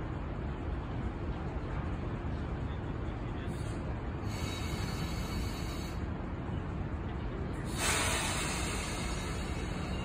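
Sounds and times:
streetcar rumbling: 0.0 - 10.0
hiss: 4.2 - 6.0, 7.7 - 10.0.

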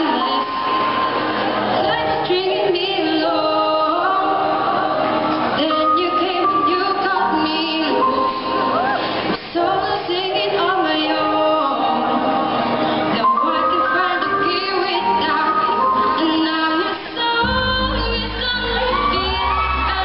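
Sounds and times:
woman singing with vibrato: 0.0 - 20.0.

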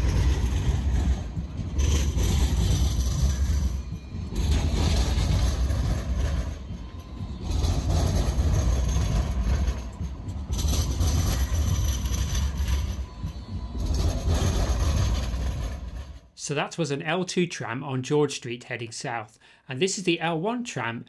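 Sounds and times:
tram wheels rumbling: 0.0 - 16.4.

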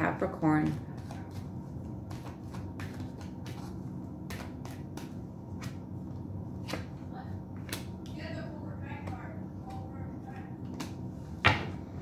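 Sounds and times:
steady low hum: 0.0 - 12.0
cards being shuffled: 0.6 - 7.0, 7.6 - 8.0.

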